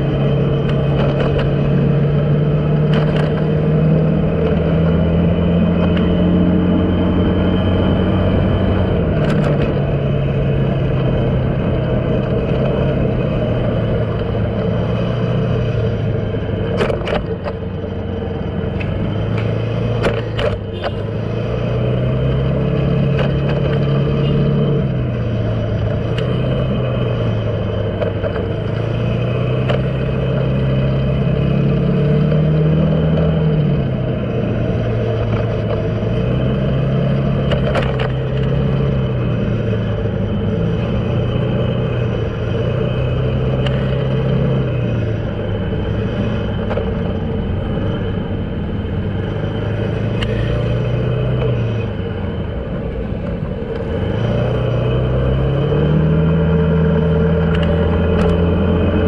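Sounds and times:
road noise: 0.0 - 59.0
vehicle engine running: 0.0 - 59.0
sharp clicks and rattles: 0.1 - 3.6, 16.4 - 21.0, 34.6 - 44.9, 46.0 - 48.1, 57.2 - 59.0.

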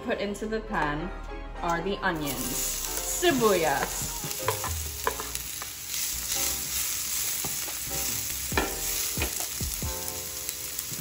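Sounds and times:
onions sizzling in oil: 2.2 - 11.0
spatula scraping and tapping pan: 3.7 - 5.7.

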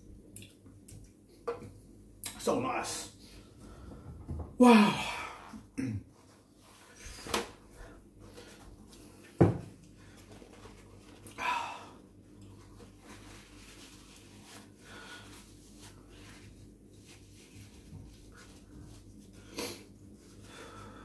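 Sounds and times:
paper towel rustling: 10.0 - 11.3, 12.5 - 20.8.

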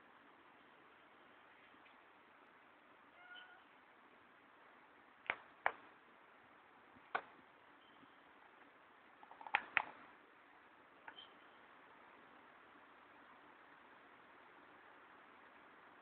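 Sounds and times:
faint steady hiss: 0.0 - 16.0
sharp clicks: 9.2 - 10.0.

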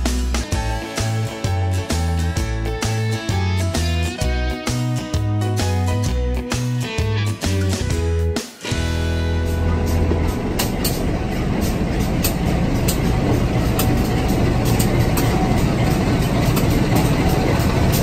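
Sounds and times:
diesel locomotive passing: 8.7 - 18.0.

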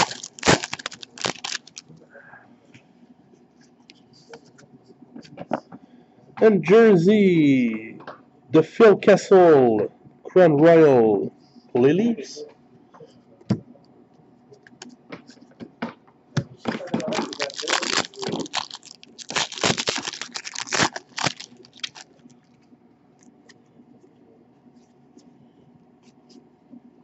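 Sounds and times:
foil wrapper tearing and crinkling: 0.0 - 1.8, 17.0 - 22.1.

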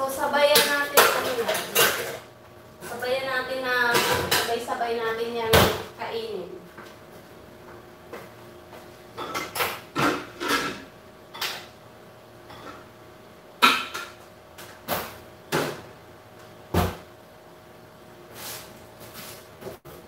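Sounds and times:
knocks and clatters in kitchen: 0.3 - 3.0, 3.8 - 4.8, 5.4 - 6.0, 9.1 - 11.8, 13.6 - 16.0, 16.7 - 17.1.

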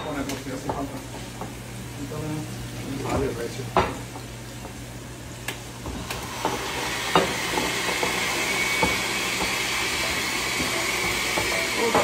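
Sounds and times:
oil sizzling in a pan: 0.0 - 12.0
blender motor whining: 6.0 - 12.0.

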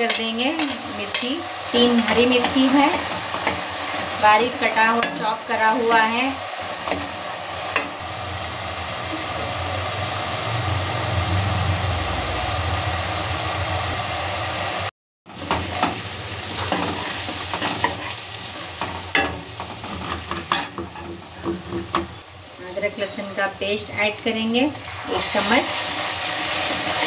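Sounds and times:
onions sizzling in oil: 0.0 - 27.0
utensil scraping a pan: 16.5 - 22.0.

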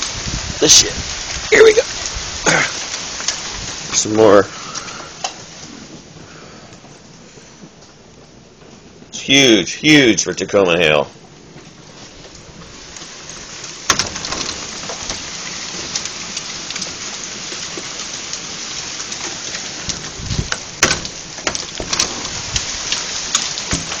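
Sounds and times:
hail pattering: 0.0 - 24.0
sharp hailstone hits: 13.8 - 18.0, 19.2 - 24.0.

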